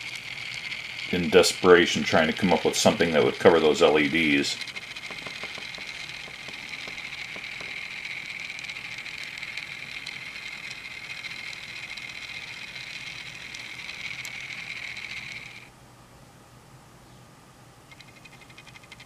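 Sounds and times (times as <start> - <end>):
toy electric train whining: 0.0 - 15.7, 17.9 - 19.0.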